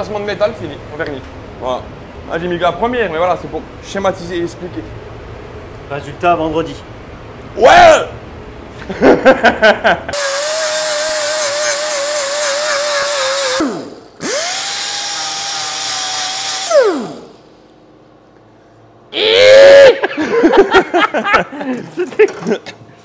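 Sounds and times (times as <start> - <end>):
power tool whining: 10.1 - 17.6.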